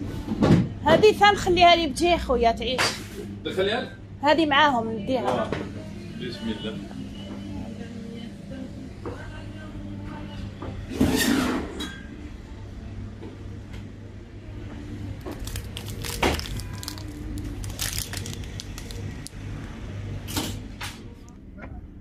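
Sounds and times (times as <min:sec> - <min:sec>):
plastic packaging crinkling: 0:15.2 - 0:19.4.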